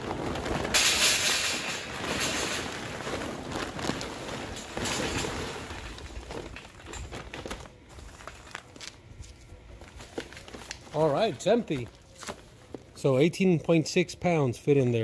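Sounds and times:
charcoal clattering into metal basket: 0.0 - 7.5.

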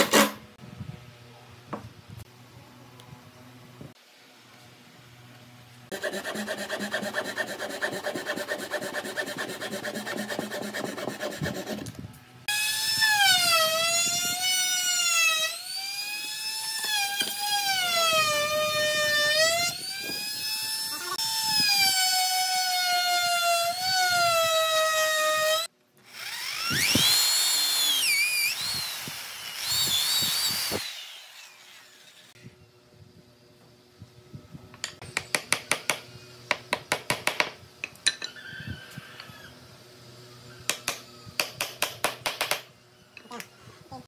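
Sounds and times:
hand saw cutting wood: 5.9 - 11.9
router motor whine: 11.1 - 32.4
electric drill boring into wood: 12.5 - 32.4.

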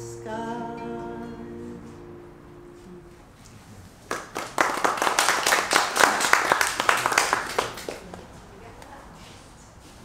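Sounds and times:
acoustic guitar chord ringing: 0.0 - 3.4
audience applauding: 4.0 - 8.3.

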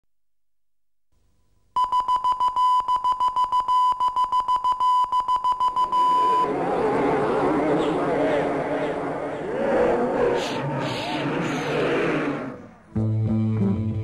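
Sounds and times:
high electronic beep: 1.8 - 6.5
rushing noise: 6.2 - 12.9.

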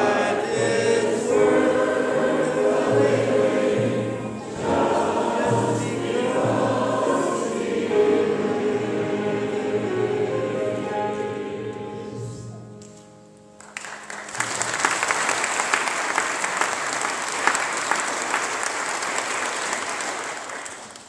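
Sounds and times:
choir and congregation singing: 0.0 - 12.8
piano: 0.0 - 21.0
congregation applauding: 13.6 - 21.0.

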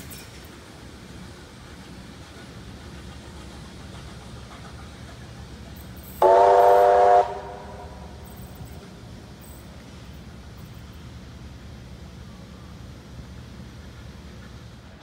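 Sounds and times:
steam locomotive whistle: 6.2 - 8.2.

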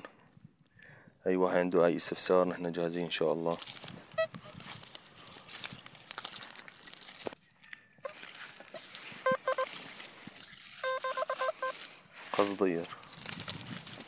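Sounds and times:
footsteps on dry stubble: 3.1 - 14.0
metal detector pulsing beeps: 4.2 - 4.6, 9.2 - 9.7, 10.8 - 11.9.

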